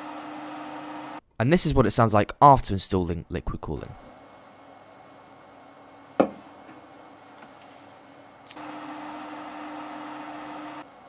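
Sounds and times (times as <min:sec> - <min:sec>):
computer fans whirring: 0:00.0 - 0:01.2, 0:03.9 - 0:11.0
computer liquid cooler hum: 0:00.0 - 0:01.2, 0:03.9 - 0:11.0.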